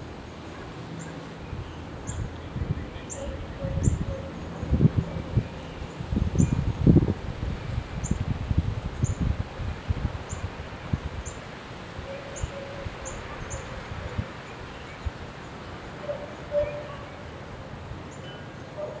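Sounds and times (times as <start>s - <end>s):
leaves rustling: 0.0s - 19.0s
wind gusting on microphone: 0.0s - 19.0s
low tonal call: 16.0s - 17.2s.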